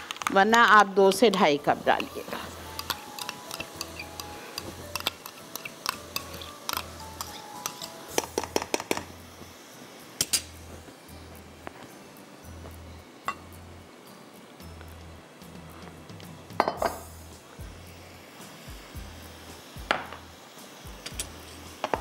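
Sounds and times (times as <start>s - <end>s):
soft background music: 0.0s - 22.0s
metal spoon clinking on pot: 2.8s - 8.6s.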